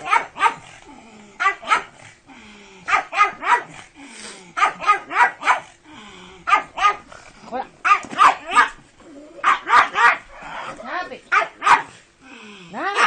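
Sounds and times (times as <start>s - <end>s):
dog barking: 0.0s - 0.7s, 1.4s - 2.0s, 2.9s - 3.8s, 4.6s - 5.7s, 6.5s - 7.1s, 7.8s - 8.8s, 9.4s - 10.4s, 11.3s - 12.0s.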